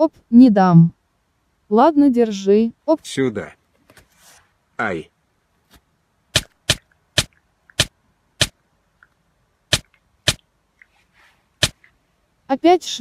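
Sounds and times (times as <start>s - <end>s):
short sharp clicks: 6.4s - 10.9s, 11.6s - 11.9s.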